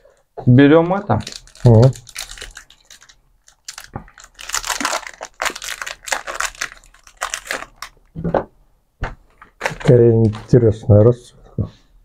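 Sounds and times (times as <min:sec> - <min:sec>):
plastic wrapper crinkling: 0:01.0 - 0:08.2, 0:09.3 - 0:10.8.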